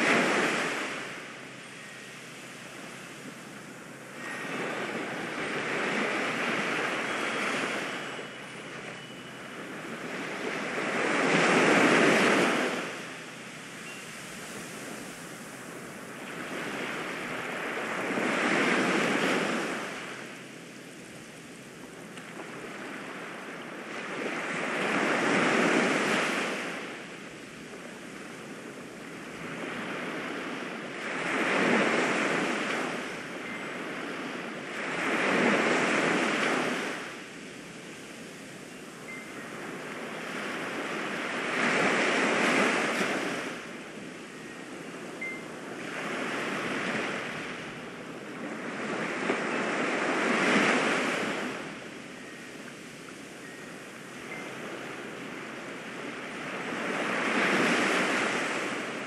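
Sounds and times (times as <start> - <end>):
ocean waves washing in: 0.0 - 59.0.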